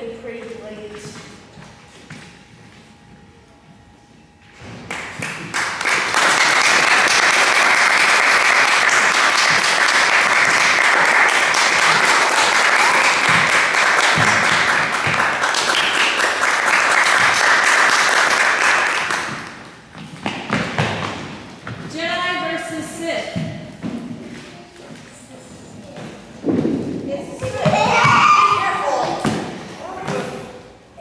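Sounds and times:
audience applauding: 0:04.9 - 0:19.6.

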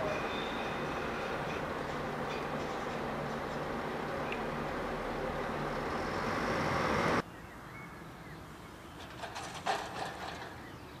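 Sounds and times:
diesel train rumbling: 0:00.0 - 0:07.2.

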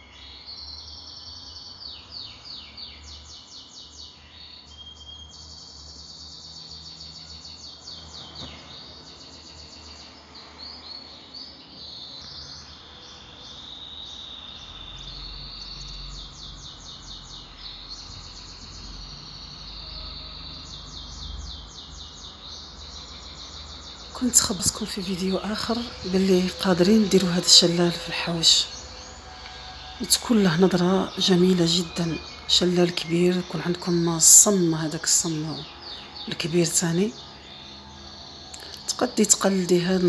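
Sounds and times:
small birds chirping and trilling: 0:00.0 - 0:40.0
low steady hum: 0:14.9 - 0:40.0.

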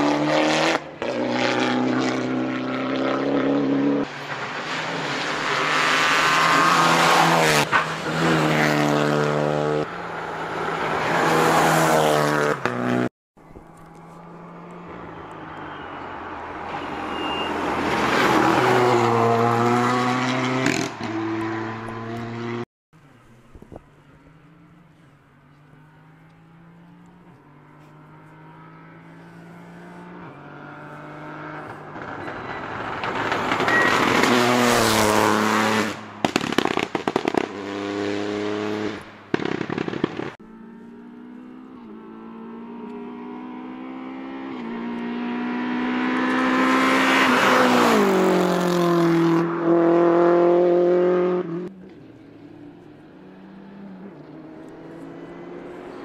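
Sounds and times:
rally cars passing: 0:00.0 - 0:56.0
exhaust pops and crackles: 0:31.7 - 0:34.8, 0:35.8 - 0:38.0, 0:39.0 - 0:40.4.

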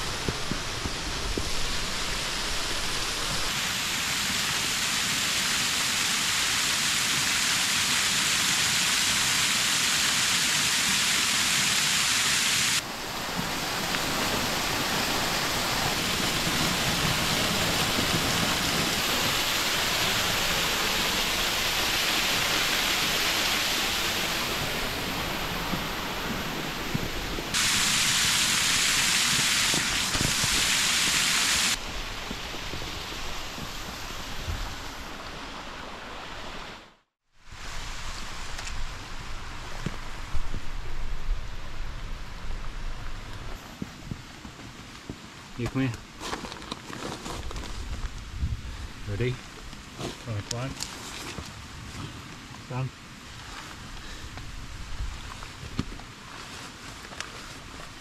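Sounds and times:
waterfall rushing: 0:00.0 - 0:36.8.

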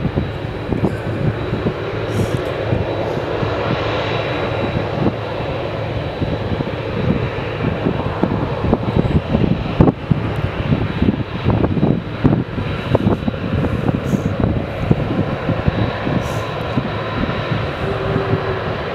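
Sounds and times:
high-pitched turbine whine: 0:00.0 - 0:18.9
jet engines roaring: 0:00.0 - 0:18.9.

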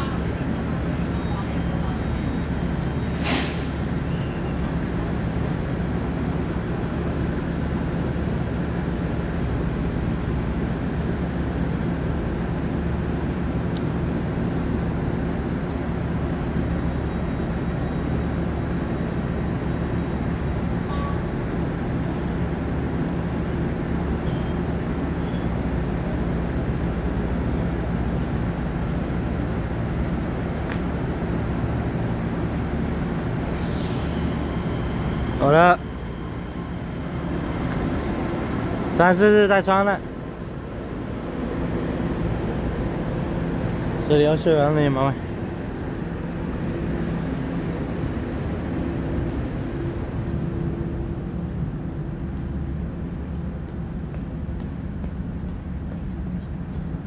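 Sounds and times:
train engines idling drone: 0:00.0 - 0:57.0.

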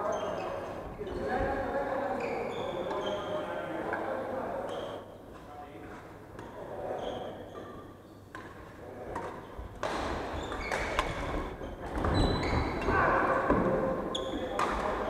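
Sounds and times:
shoes squeaking on wooden floor: 0:12.0 - 0:13.2.

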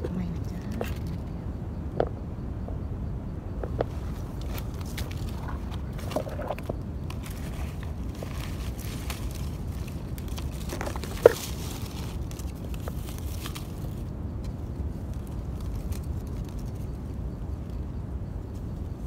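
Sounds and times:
faint crackles: 0:03.6 - 0:19.0
hands rustling through leaf litter: 0:04.0 - 0:16.9.

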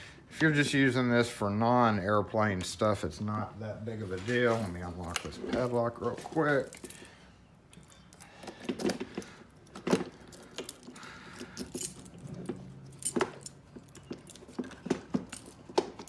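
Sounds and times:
padlock metallic jingling: 0:04.4 - 0:16.0.

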